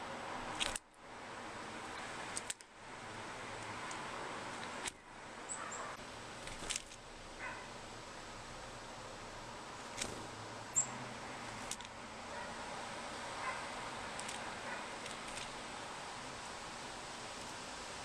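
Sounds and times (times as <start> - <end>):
background hiss: 0.0 - 18.0
sharp clicks: 0.6 - 0.9, 2.3 - 2.7
bird chirps: 5.5 - 6.0, 10.7 - 11.0.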